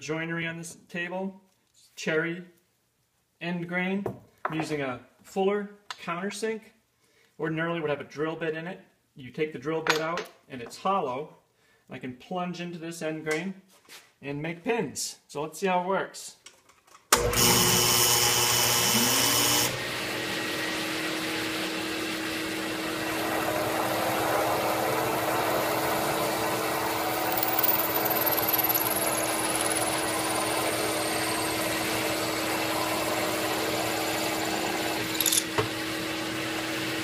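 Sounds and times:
countersink cutting wood: 17.2s - 37.0s
drill press motor humming: 17.2s - 37.0s.

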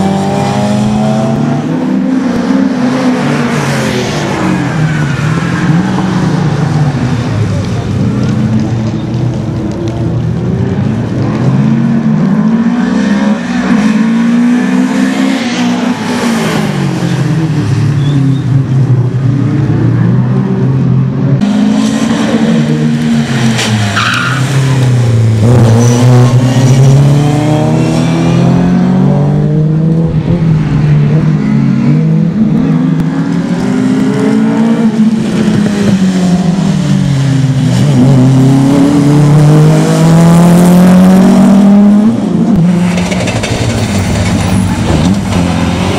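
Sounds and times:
rally car engines revving: 0.0s - 45.9s
tyre squeal: 23.9s - 24.9s.

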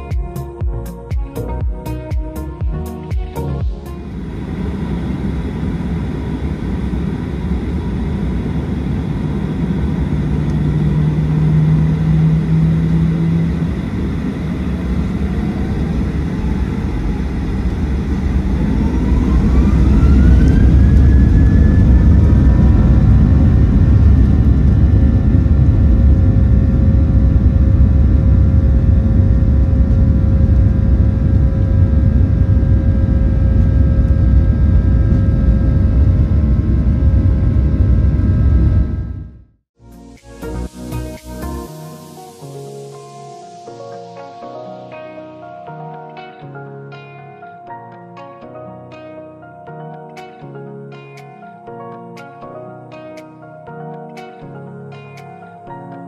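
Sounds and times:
low hum: 0.0s - 39.5s
jet engine whine rising: 2.9s - 45.5s
jet engine rumble: 3.8s - 39.4s.

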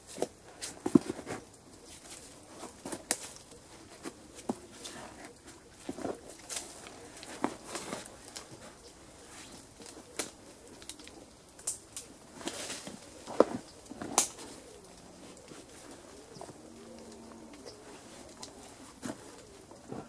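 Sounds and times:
branches and leaves rustling: 0.0s - 20.0s
twigs snapping: 0.1s - 20.0s.

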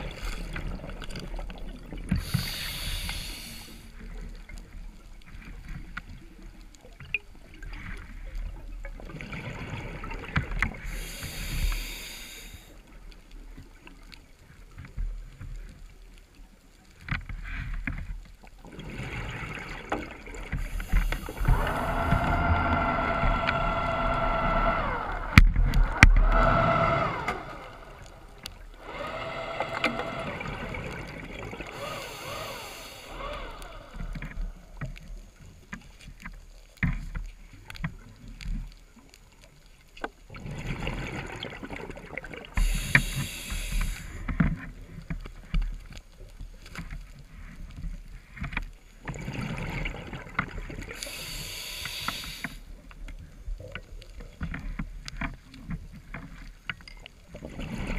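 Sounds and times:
diver exhaling bubbles: 18.7s - 34.5s.

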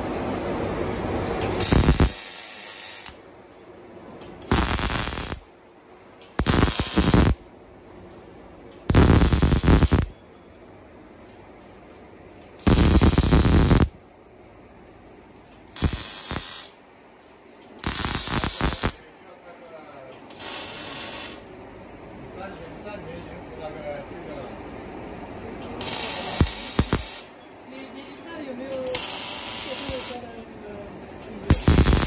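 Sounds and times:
welding arc hiss: 1.4s - 3.2s, 4.4s - 5.5s, 6.4s - 7.4s, 8.9s - 10.1s, 12.6s - 14.0s, 15.6s - 16.8s, 17.8s - 19.0s, 20.3s - 21.5s, 25.6s - 27.4s, 28.8s - 30.3s, 31.3s - 32.0s.

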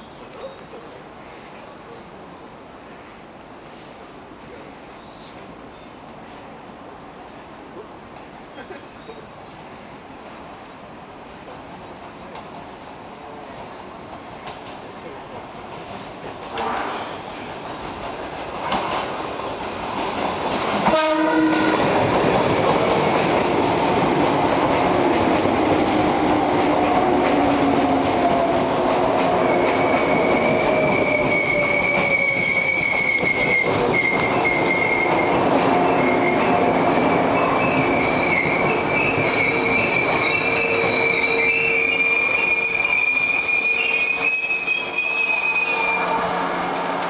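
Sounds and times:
train wheels rumbling on rails: 10.1s - 47.0s
brake squeal: 29.4s - 35.3s, 37.4s - 46.4s.

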